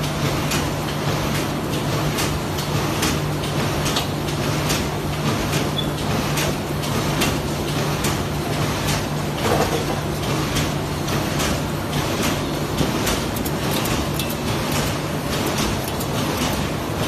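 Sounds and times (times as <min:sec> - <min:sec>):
machine low hum: 0:07.1 - 0:17.0.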